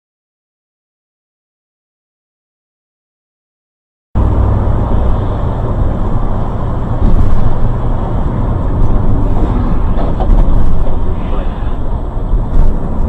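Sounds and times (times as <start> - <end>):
vehicle road and engine rumble: 4.2 - 13.0.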